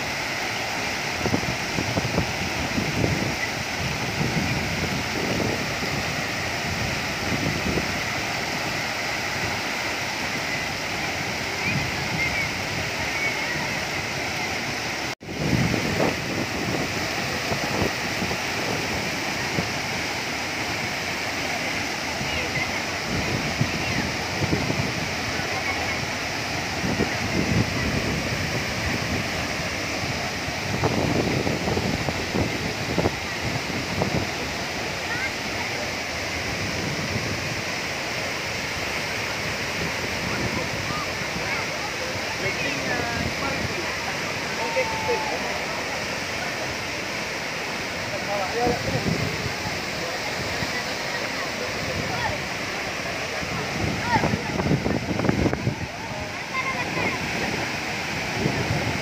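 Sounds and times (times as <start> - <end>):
waterfall rushing into pool: 0.0 - 59.0
wind gusts on microphone: 0.0 - 59.0.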